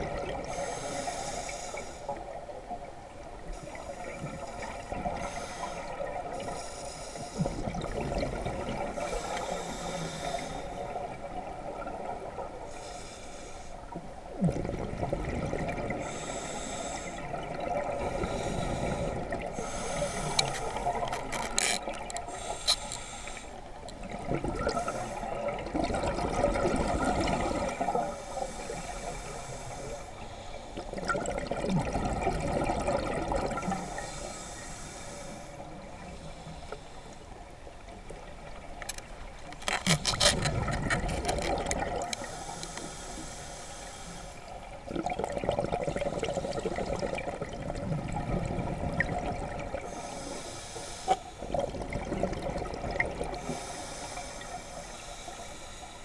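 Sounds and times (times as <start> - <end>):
gurgling exhaled bubbles: 0.0 - 0.6, 7.4 - 9.3, 14.3 - 16.3, 17.2 - 22.2, 23.9 - 28.2, 30.8 - 33.9, 40.0 - 42.4, 44.8 - 50.2, 51.4 - 53.7
hissing regulator inhalations: 0.4 - 2.3, 3.5 - 7.6, 9.0 - 11.0, 12.7 - 14.0, 16.0 - 17.3, 18.0 - 23.7, 24.7 - 25.5, 27.3 - 30.9, 33.6 - 37.4, 42.1 - 44.6, 49.9 - 51.4, 53.3 - 56.0.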